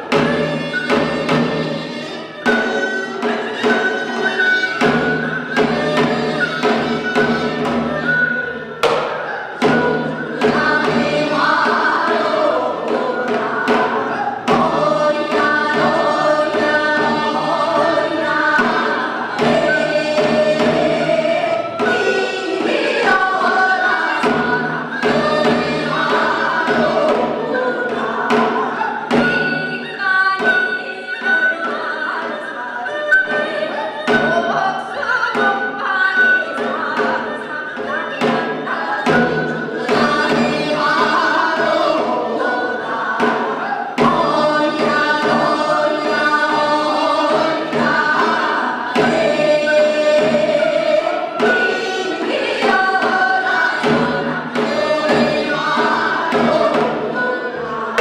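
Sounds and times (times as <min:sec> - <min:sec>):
drum strokes: 0:00.0 - 0:31.6, 0:37.8 - 0:58.0
women singing together: 0:00.0 - 0:58.0.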